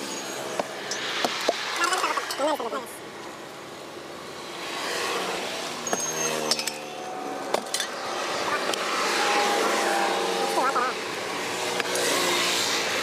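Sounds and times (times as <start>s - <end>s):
vehicle passing: 4.4s - 13.0s.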